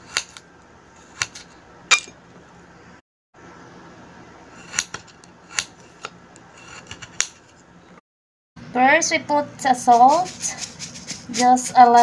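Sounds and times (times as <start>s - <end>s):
knife clinking on ceramic plate: 1.9s - 2.2s.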